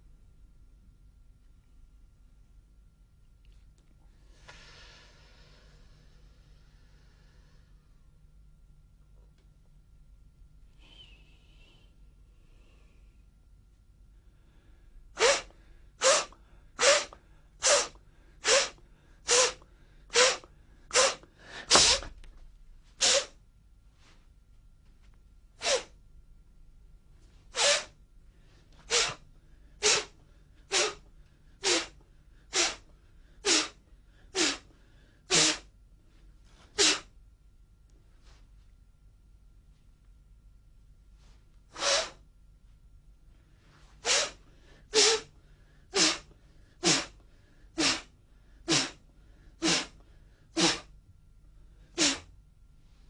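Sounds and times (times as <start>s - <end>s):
forceful sharp exhalations: 15.2s - 22.1s, 23.0s - 23.4s, 25.6s - 26.0s, 27.5s - 27.9s, 28.8s - 29.2s, 30.7s - 31.0s, 31.6s - 32.8s, 33.4s - 34.7s, 35.3s - 35.7s, 36.6s - 37.1s, 41.7s - 42.2s, 43.9s - 45.3s, 45.9s - 47.2s, 47.8s - 49.0s, 49.6s - 50.9s, 51.9s - 52.3s.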